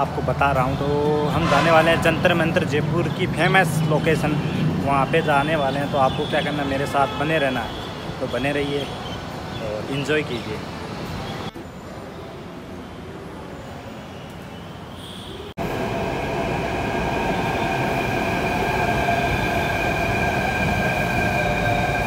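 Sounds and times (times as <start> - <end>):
metro train rumbling on rails: 0.0 - 6.0, 15.6 - 22.0.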